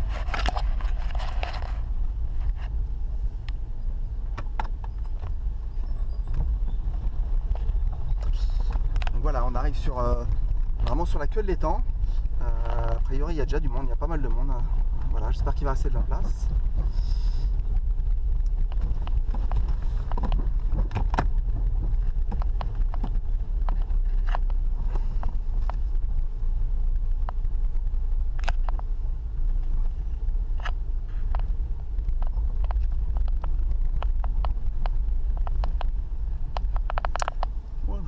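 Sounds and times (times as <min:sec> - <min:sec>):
car engine and road rumble: 0:00.0 - 0:38.0
sharp clicks and knocks: 0:04.3 - 0:05.4, 0:06.3 - 0:09.4, 0:18.0 - 0:25.9, 0:30.5 - 0:37.6.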